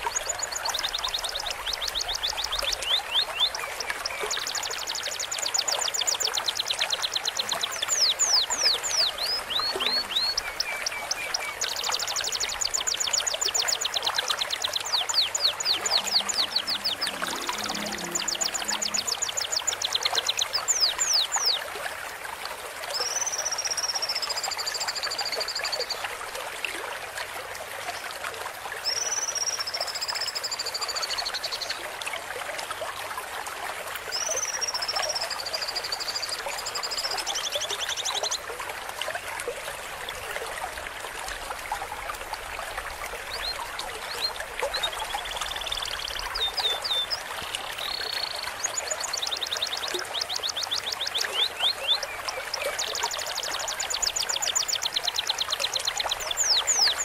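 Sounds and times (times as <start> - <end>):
birdsong recording: 0.0 - 21.6, 43.2 - 57.0
running water trickling: 0.0 - 57.0.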